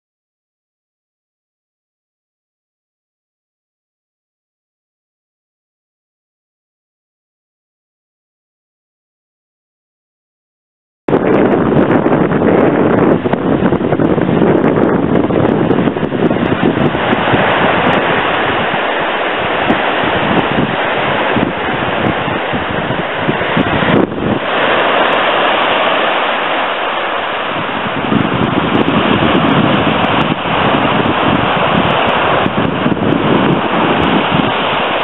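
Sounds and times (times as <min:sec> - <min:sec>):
small waves breaking on shore: 0:11.1 - 0:35.0
wind buffeting microphone: 0:11.1 - 0:35.0.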